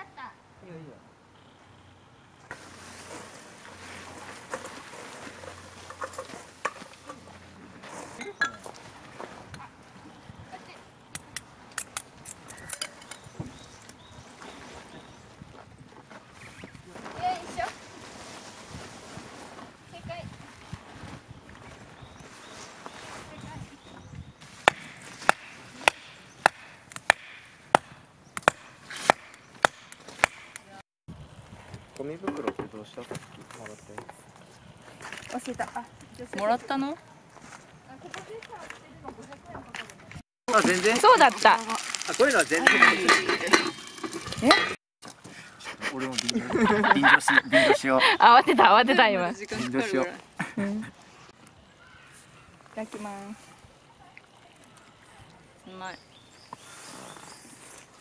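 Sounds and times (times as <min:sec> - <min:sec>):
nylon tent fabric rustling: 0:16.2 - 0:25.2, 0:40.4 - 0:44.8
tent pegs being hammered: 0:24.6 - 0:30.8.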